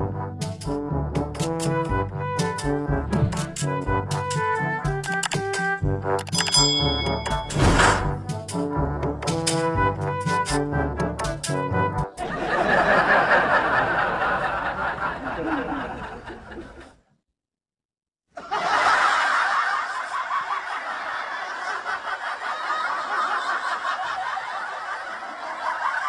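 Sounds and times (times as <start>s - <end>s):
laughter: 12.2s - 17.1s, 18.3s - 26.0s.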